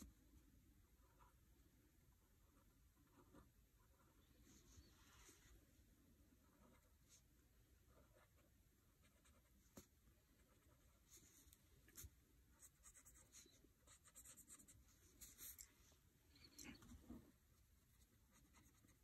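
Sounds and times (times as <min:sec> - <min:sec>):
pencil scratching on paper: 0:10.4 - 0:15.6, 0:18.3 - 0:19.0.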